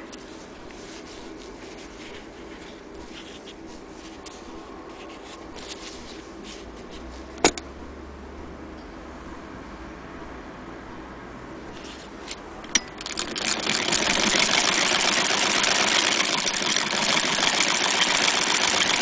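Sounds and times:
denim fabric rustling: 0.2 - 7.3.

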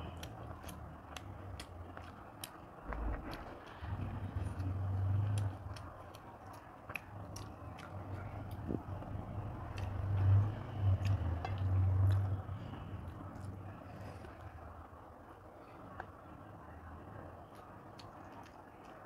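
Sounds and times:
fingers squishing food: 0.0 - 12.4
chewing: 0.0 - 14.6, 15.6 - 19.0
low rumble: 2.8 - 6.1.

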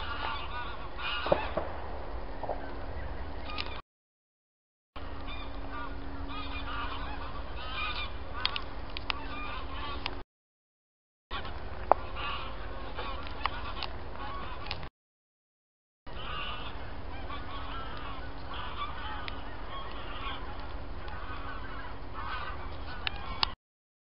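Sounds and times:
flock of geese honking: 0.0 - 1.8, 5.0 - 10.2, 11.3 - 14.9, 16.1 - 23.6.

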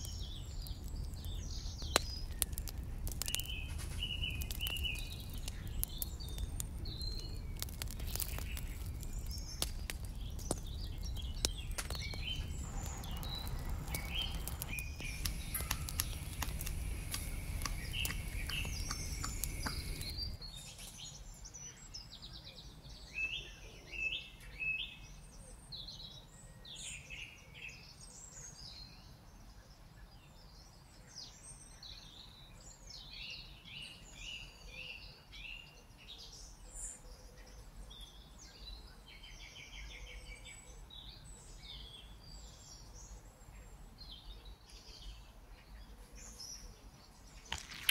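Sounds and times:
wood fire crackling: 0.0 - 20.4, 47.3 - 47.9
small birds chirping: 0.0 - 47.9.

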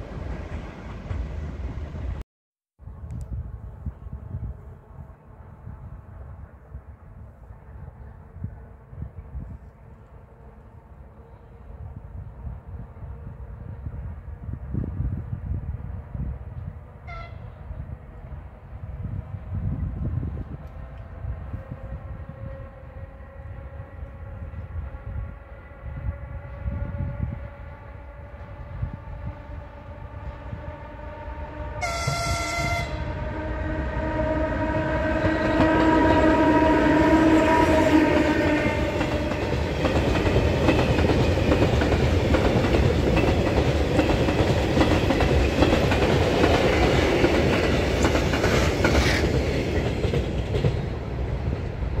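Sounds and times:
locomotive whine: 16.1 - 52.0
train horn blast: 17.0 - 17.6, 21.5 - 39.8.

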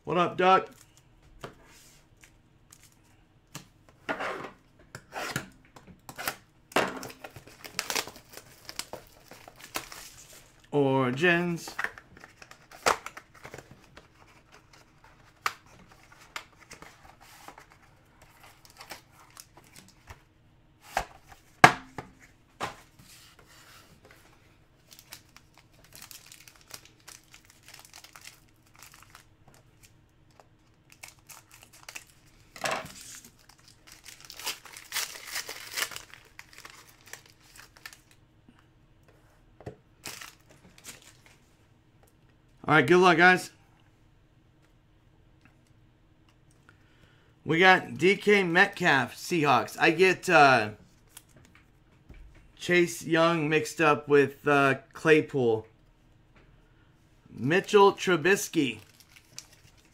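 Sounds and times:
foil pack crinkling and tearing: 7.1 - 10.6, 24.8 - 38.2, 40.0 - 41.3, 58.7 - 59.9.

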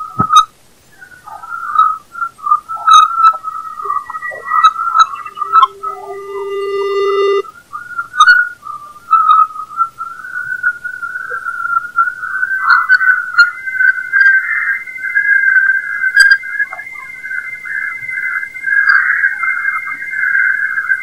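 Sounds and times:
wavering whistle-like tone: 1.2 - 8.8, 9.6 - 21.0
steady higher tone: 3.9 - 7.5.

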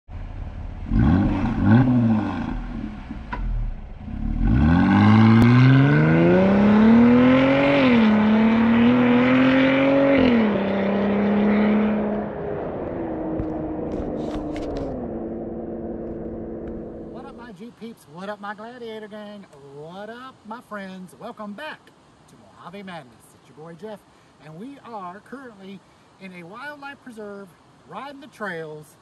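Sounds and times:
truck engine revving and accelerating: 0.7 - 3.2, 3.8 - 17.5.

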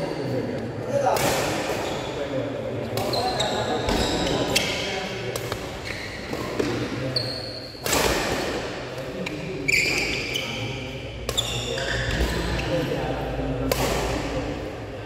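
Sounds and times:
shoes squeaking on court: 3.0 - 4.8, 5.8 - 7.8, 9.7 - 10.7, 11.3 - 12.7
racket striking shuttlecock: 13.6 - 14.3.

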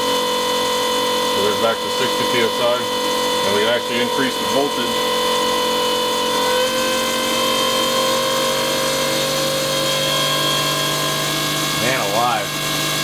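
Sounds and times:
fuel pump electric whine: 0.0 - 13.0.

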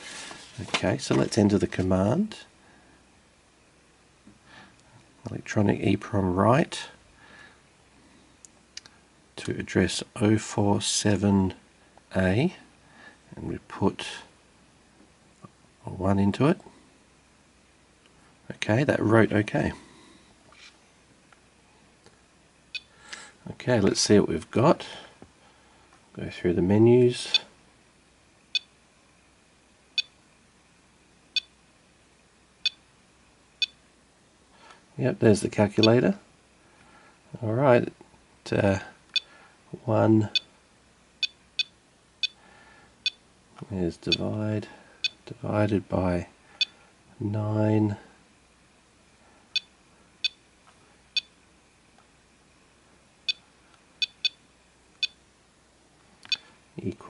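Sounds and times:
phone key-press beeps: 41.2 - 42.4, 49.6 - 50.4, 54.0 - 54.4.

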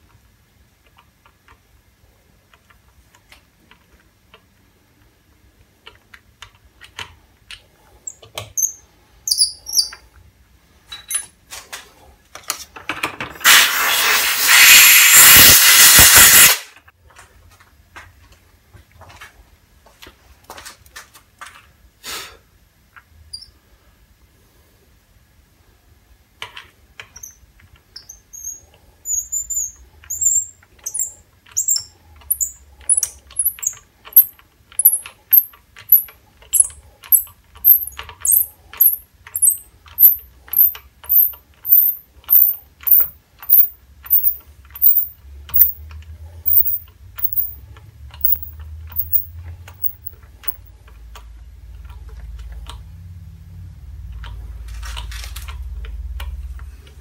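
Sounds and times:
hand tap squeaking and clicking: 6.8 - 10.1, 26.4 - 45.8, 46.5 - 47.6, 48.2 - 50.7.

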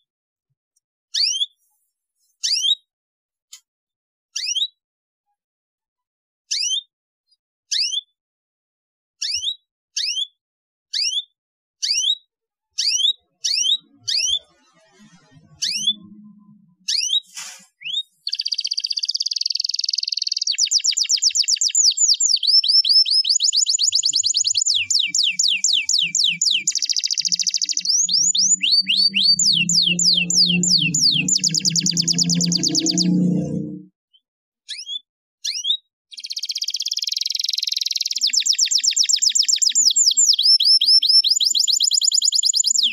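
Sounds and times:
canary chirping and singing: 12.8 - 17.2, 17.8 - 33.8, 34.7 - 42.9.

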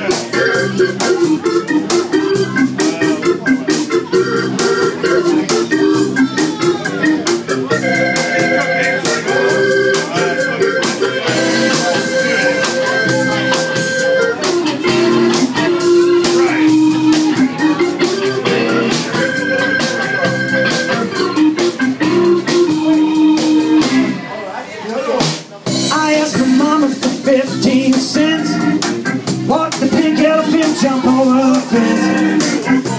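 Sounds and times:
bass: 0.0 - 24.2, 25.2 - 32.9
drum kit beat: 0.0 - 24.2, 25.2 - 32.9
electric organ chords: 0.0 - 24.2, 25.7 - 32.9.

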